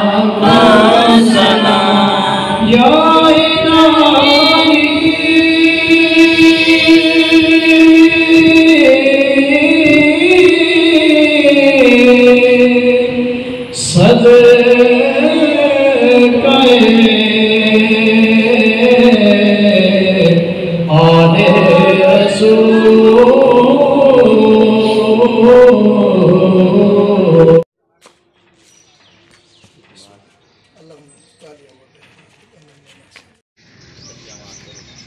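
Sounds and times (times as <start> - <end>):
man singing unaccompanied: 0.0 - 27.7.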